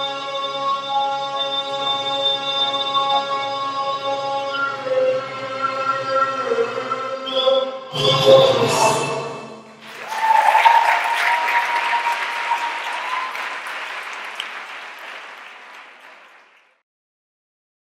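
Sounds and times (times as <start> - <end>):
audience applause: 9.8 - 16.8.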